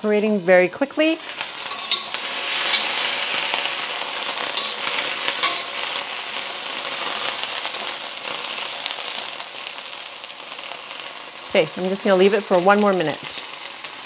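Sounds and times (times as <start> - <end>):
beans sizzling in a wok: 0.0 - 14.0
spatula scraping a wok: 1.2 - 8.8.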